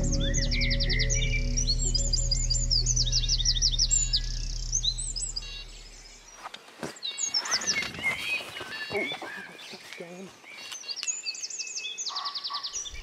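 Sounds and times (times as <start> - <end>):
soft low music: 0.0 - 6.2
birds chirping: 0.0 - 13.0.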